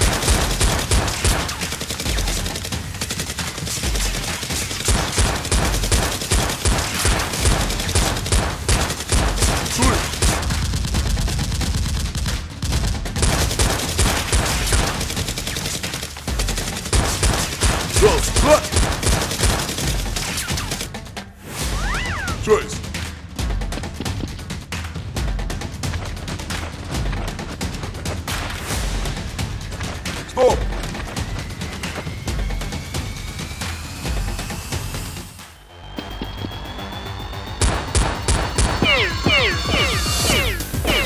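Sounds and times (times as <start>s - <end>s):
automatic gunfire sound effects: 0.0s - 20.9s.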